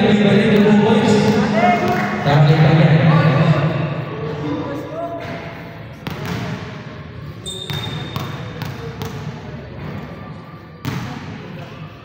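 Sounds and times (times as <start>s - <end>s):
basketball bouncing on court floor: 6.0s - 6.8s, 7.5s - 10.0s, 10.8s - 11.4s.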